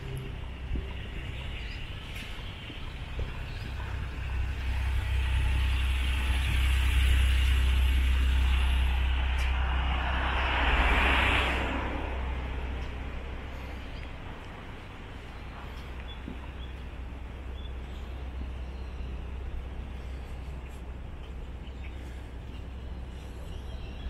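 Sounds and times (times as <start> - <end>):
motor vehicle passing: 4.2 - 13.8.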